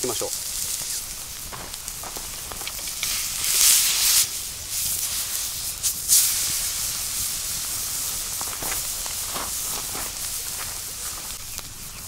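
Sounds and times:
meat sizzling in a frying pan: 0.0 - 12.0.

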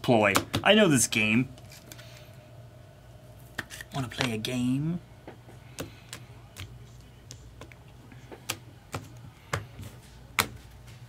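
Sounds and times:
low steady hum: 0.0 - 11.0
cards clicking and tapping: 0.3 - 0.7, 3.6 - 4.4, 5.3 - 10.7.

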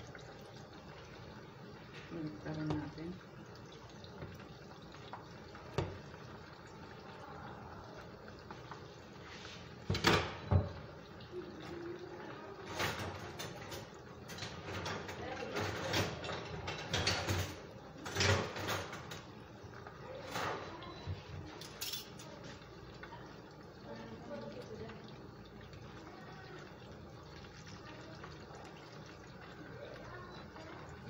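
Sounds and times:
deep-frying sizzle: 0.0 - 31.0
clattering knocks and clinks: 12.7 - 19.2.

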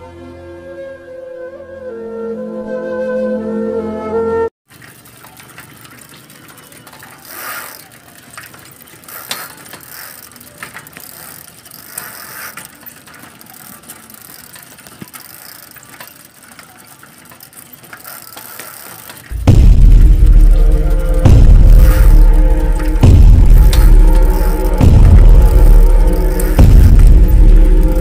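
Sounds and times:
bicycle freewheel ratcheting: 4.7 - 28.0.

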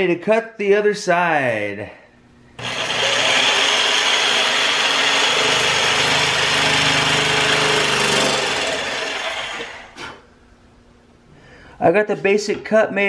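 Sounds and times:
jigsaw cutting wood: 2.6 - 10.0.

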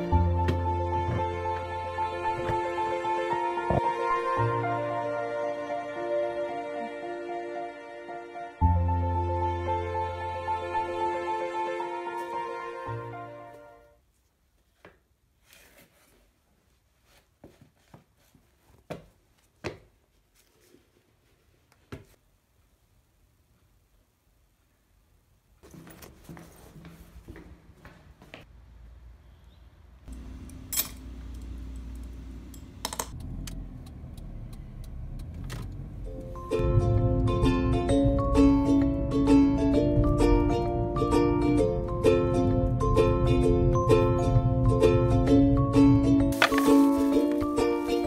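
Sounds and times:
background music: 0.0 - 14.0, 36.1 - 48.0
shoes scuffing on tiled floor: 12.2 - 12.5, 14.6 - 22.2, 25.6 - 28.5, 46.3 - 48.0
car engine and road hum: 30.1 - 46.0.

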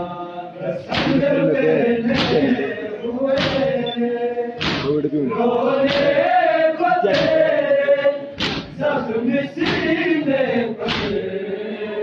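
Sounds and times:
men chanting in chorus: 0.0 - 12.0
chest-beating slaps: 0.9 - 1.3, 2.1 - 2.6, 3.3 - 3.8, 4.6 - 5.0, 5.8 - 6.2, 7.0 - 7.6, 8.3 - 8.8, 9.6 - 10.0, 10.8 - 11.2.

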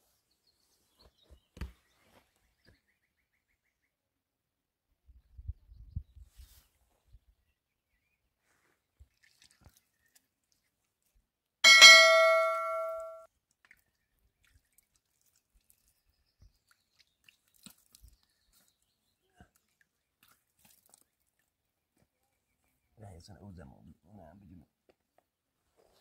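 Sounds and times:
bright ringing strike: 11.6 - 13.2.

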